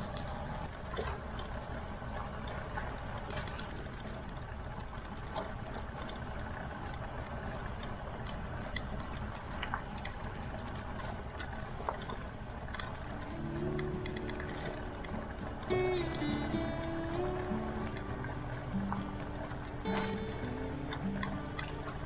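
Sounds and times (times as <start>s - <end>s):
faint ticks: 17.8s - 22.0s.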